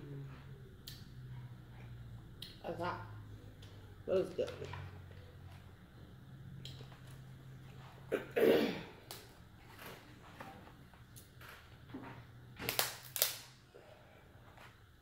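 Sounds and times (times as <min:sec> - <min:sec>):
crab shells cracking and snapping: 0:12.6 - 0:13.5.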